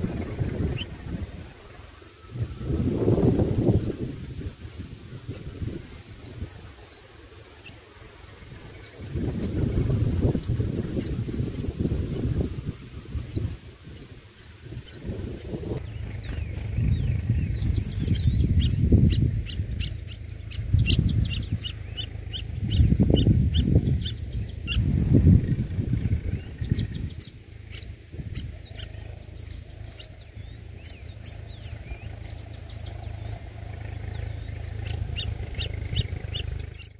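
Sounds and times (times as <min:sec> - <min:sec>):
nestlings chirping: 0:00.0 - 0:04.0, 0:05.2 - 0:36.9
low rumbling: 0:00.0 - 0:36.9.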